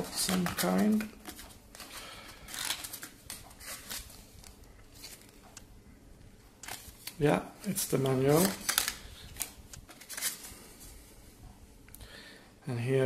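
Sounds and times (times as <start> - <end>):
paper rustling and scraping: 0.0 - 5.4, 6.6 - 10.9.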